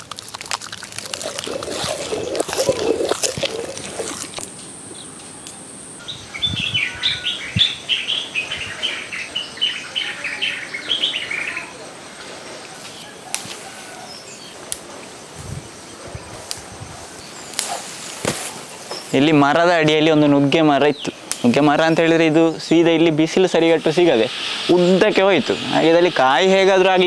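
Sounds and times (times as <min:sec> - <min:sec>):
bird chirping: 0:01.1 - 0:14.7.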